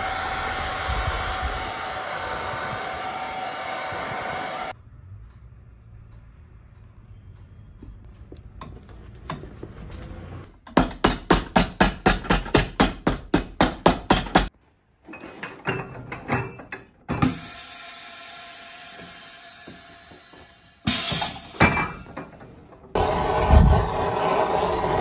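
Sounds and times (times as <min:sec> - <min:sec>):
hammer striking leather sole: 0:10.7 - 0:14.5.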